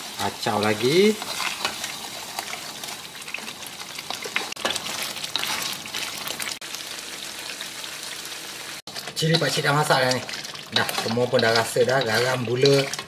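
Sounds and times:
paste sizzling and bubbling in a wok: 0.0 - 13.0
spatula scraping against pan: 1.1 - 2.6, 4.4 - 5.8, 8.9 - 13.0.

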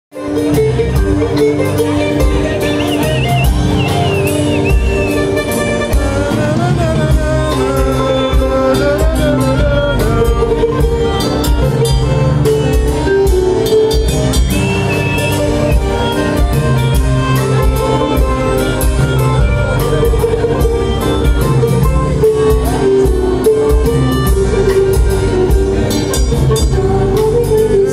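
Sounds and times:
acoustic guitar: 0.1 - 27.9
drum kit: 0.1 - 27.9
electric bass: 0.1 - 27.9
woman singing: 26.6 - 27.9.

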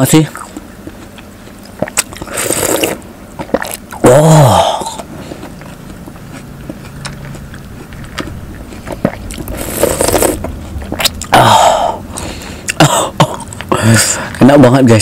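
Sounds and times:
person slurping juice: 1.8 - 5.7, 7.9 - 12.9.

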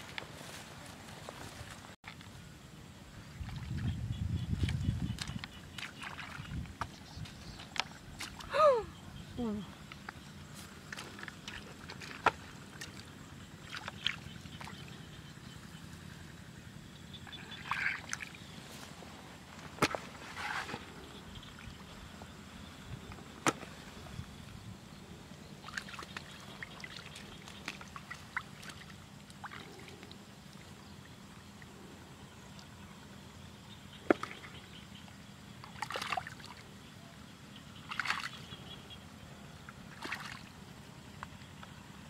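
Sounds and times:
hands splashing in muddy water: 35.7 - 36.6, 37.9 - 38.4, 39.9 - 40.5.

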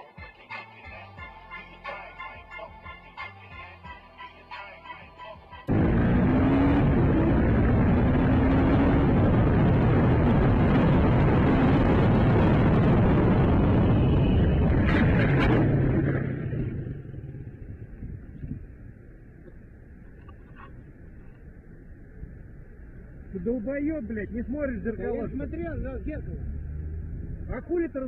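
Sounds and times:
road and wind noise: 5.5 - 28.0
vehicle engine: 5.6 - 28.0.

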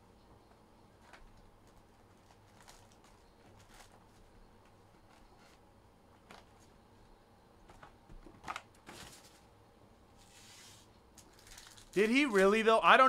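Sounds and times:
trading cards rustling and clicking: 1.0 - 5.6.

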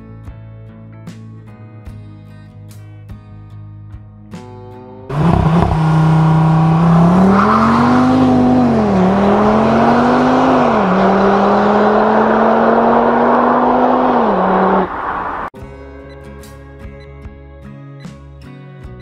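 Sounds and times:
car engine starting and revving: 4.9 - 15.6.

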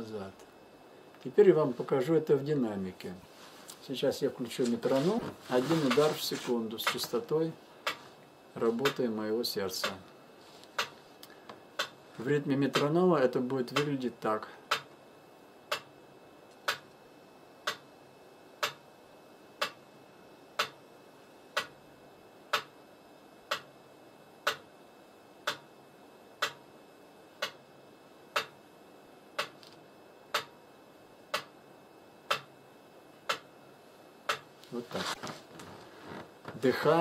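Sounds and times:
metronome ticking: 14.7 - 14.9, 24.4 - 24.6, 25.4 - 25.6, 26.4 - 26.6, 28.4 - 28.6, 30.3 - 30.6, 31.3 - 31.5, 32.3 - 32.5, 33.3 - 33.5.

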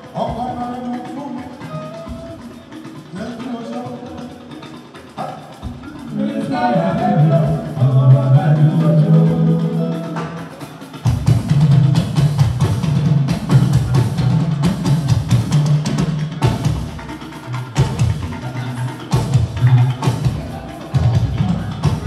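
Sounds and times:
drums and percussion: 0.0 - 22.0.

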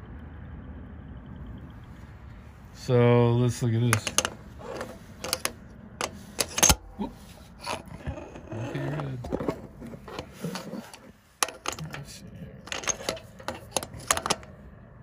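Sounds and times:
metallic clicks and knocks of tools: 3.9 - 6.9, 9.3 - 12.1, 12.7 - 14.5.

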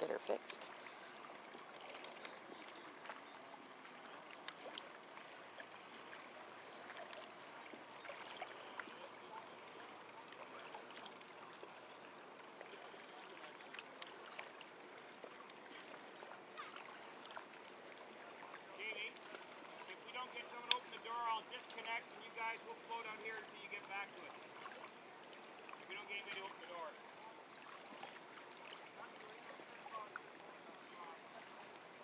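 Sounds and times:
lake water lapping and trickling: 0.0 - 32.0
light ticks: 20.6 - 21.0.

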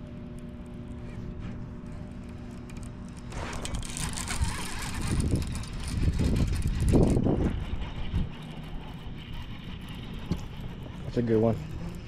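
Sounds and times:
electric motor humming: 2.1 - 12.0
rushing and rumbling noise: 3.1 - 12.0.

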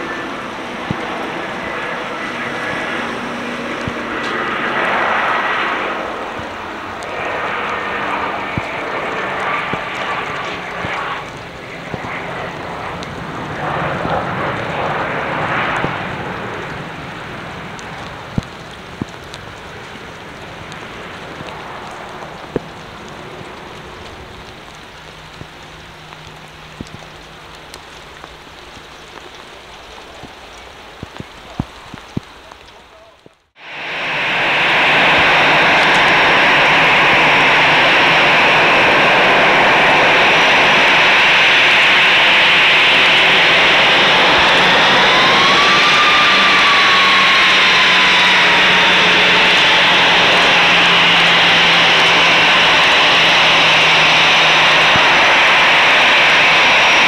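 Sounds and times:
heavy rain: 0.0 - 57.0
jet engines running: 0.0 - 57.0
steady rush: 0.0 - 57.0.

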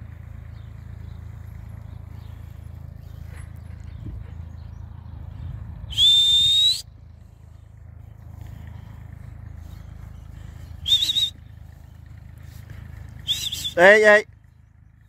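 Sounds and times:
low steady rumble: 0.0 - 15.0
person whistling loudly: 5.9 - 6.9, 10.8 - 11.4, 13.2 - 14.0.

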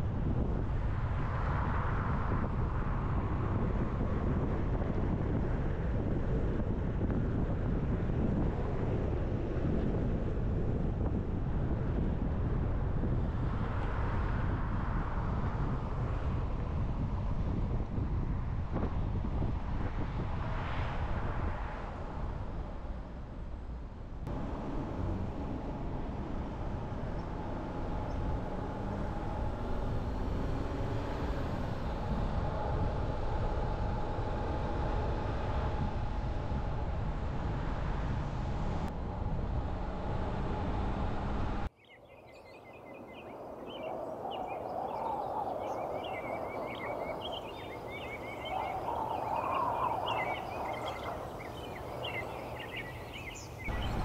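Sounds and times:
car road and engine noise: 0.0 - 54.0
street ambience: 23.9 - 54.0
birds chirping: 41.7 - 54.0.

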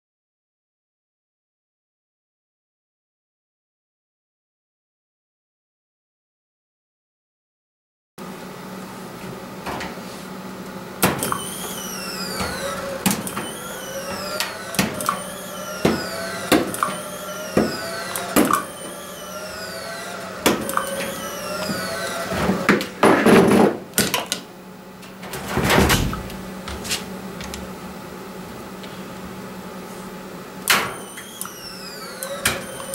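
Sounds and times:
electronic whine: 11.2 - 22.7, 30.9 - 32.9
spot welder snaps: 12.5 - 19.0.

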